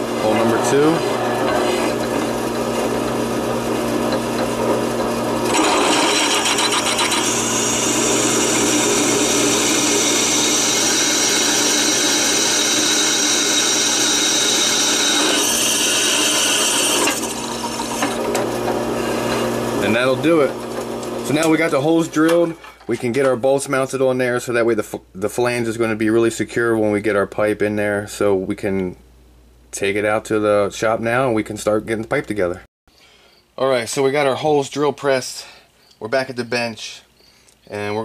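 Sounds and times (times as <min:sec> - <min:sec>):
drill press cutting metal: 0:00.2 - 0:22.4.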